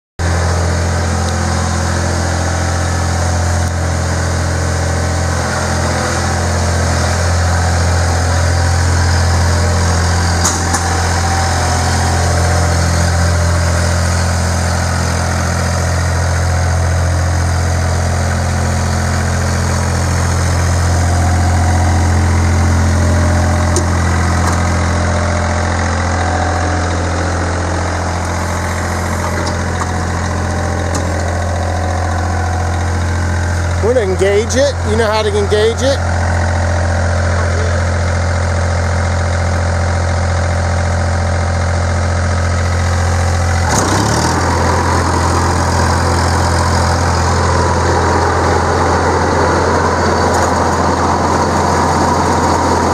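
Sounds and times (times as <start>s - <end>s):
diesel mower engine running: 0.2s - 52.9s.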